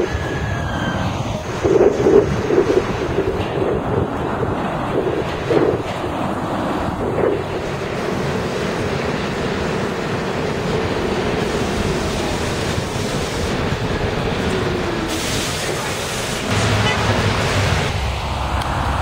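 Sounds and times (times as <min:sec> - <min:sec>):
train motor whine: 0:00.0 - 0:19.0
train wheels rumbling on rail: 0:00.0 - 0:19.0
harsh hiss: 0:11.4 - 0:18.4.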